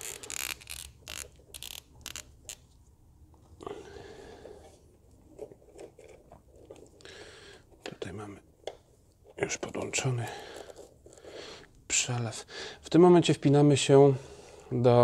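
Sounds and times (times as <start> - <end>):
plastic fittings clicking and scraping: 0.0 - 2.6.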